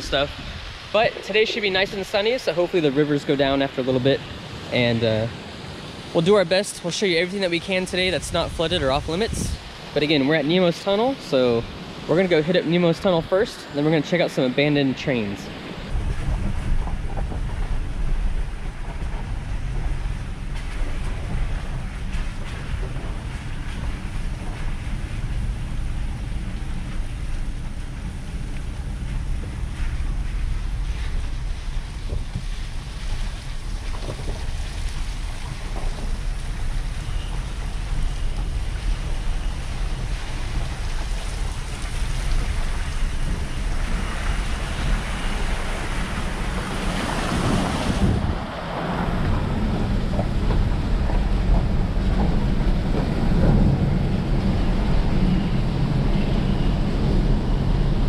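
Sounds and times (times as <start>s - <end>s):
engine and tyres rumbling: 0.0s - 58.0s
water splashing onto windshield: 15.1s - 55.8s.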